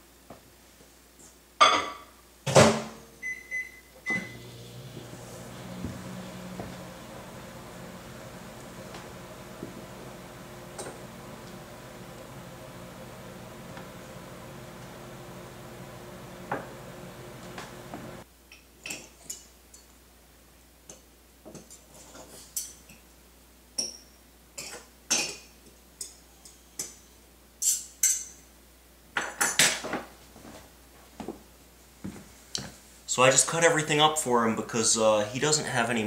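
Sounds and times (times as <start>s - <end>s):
steady low hum: 4.3s - 18.2s.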